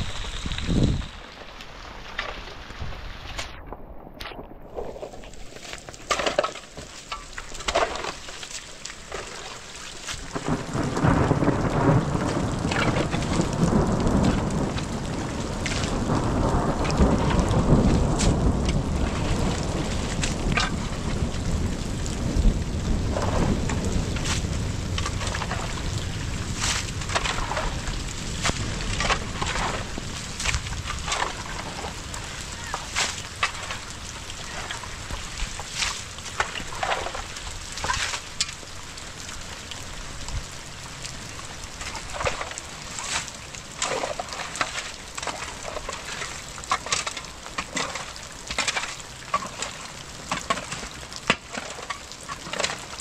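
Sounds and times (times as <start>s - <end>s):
rain falling: 0.0s - 53.0s
low rumble of thunder: 10.2s - 38.1s.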